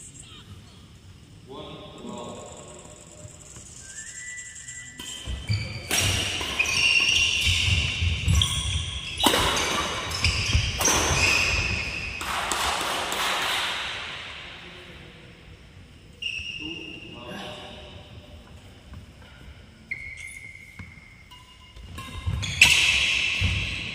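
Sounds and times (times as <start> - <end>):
sports shoes squeaking: 2.7 - 12.3, 16.2 - 17.6, 18.2 - 23.9
rackets striking shuttlecock: 5.0 - 14.2, 20.2 - 23.9.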